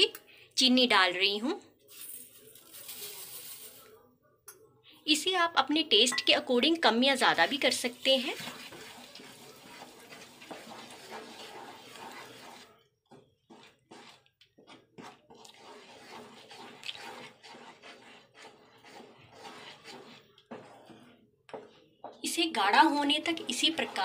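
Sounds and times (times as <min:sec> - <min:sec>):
spatula scraping and stirring pan: 0:06.3 - 0:24.0.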